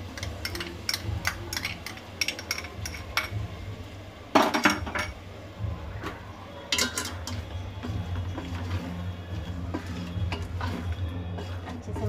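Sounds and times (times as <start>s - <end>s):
utensils knocking metal pot: 0.0s - 3.5s, 4.4s - 5.2s, 6.7s - 8.8s, 9.7s - 12.0s.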